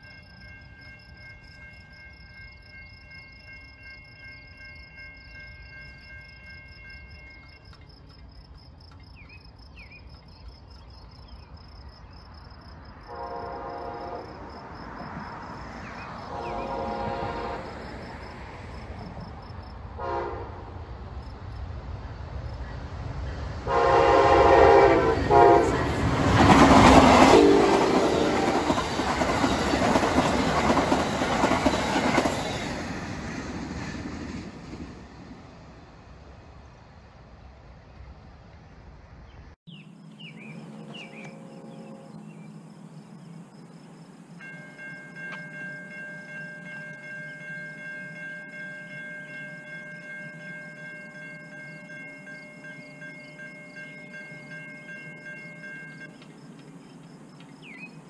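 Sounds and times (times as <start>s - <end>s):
train cars rushing and clattering: 12.9s - 39.2s
train horn: 13.1s - 14.6s, 15.9s - 18.6s, 20.0s - 20.9s, 23.6s - 32.4s, 40.6s - 42.9s
steady ringing tone: 40.1s - 56.2s.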